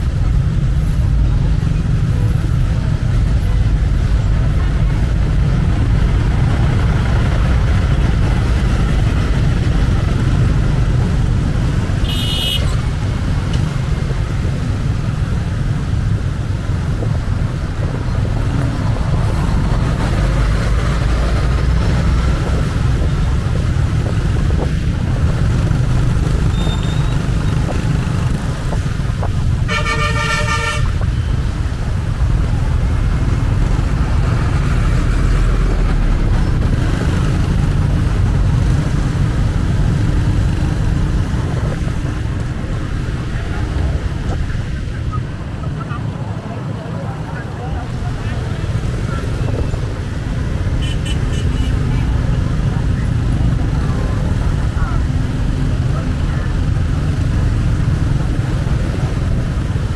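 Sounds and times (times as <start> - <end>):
road traffic rumble: 0.0 - 59.9
vehicle horns: 12.0 - 12.9, 29.6 - 31.4, 50.7 - 52.0.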